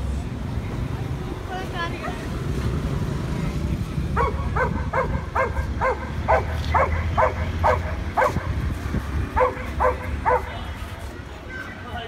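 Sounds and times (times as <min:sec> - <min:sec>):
dog barking: 0:04.2 - 0:08.6, 0:09.3 - 0:10.6.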